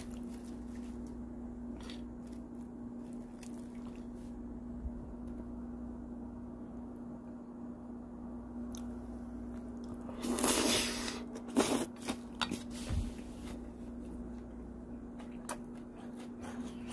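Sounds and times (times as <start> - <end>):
wet chewing and crunching: 0.0 - 4.4, 8.7 - 12.7, 14.0 - 16.9
steady low hum: 0.0 - 16.9.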